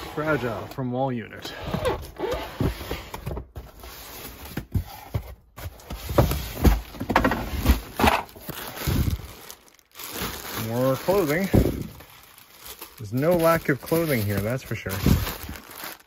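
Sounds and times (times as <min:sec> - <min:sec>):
plastic bag rustling: 0:06.1 - 0:16.0.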